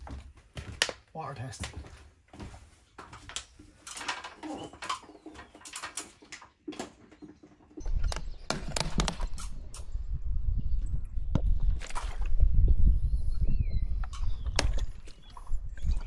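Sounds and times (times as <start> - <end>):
wind rumble on microphone: 7.8 - 16.0.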